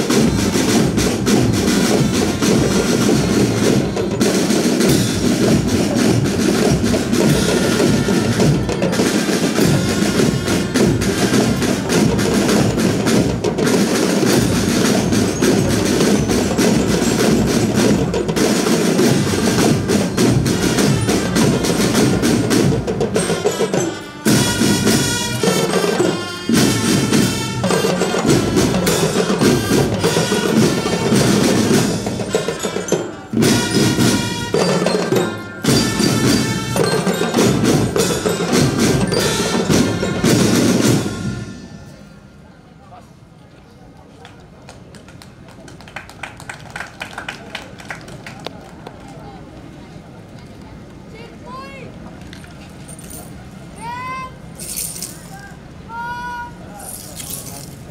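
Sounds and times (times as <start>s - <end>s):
marching snare and bass drums: 0.0s - 42.0s
pitched melody: 0.0s - 42.1s.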